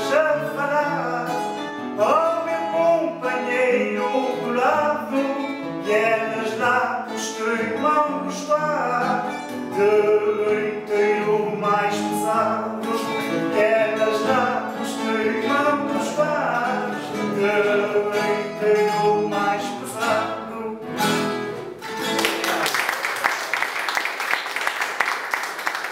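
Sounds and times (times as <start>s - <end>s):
man singing: 0.0s - 21.2s
strummed acoustic guitar: 0.0s - 22.6s
applause: 22.0s - 25.9s.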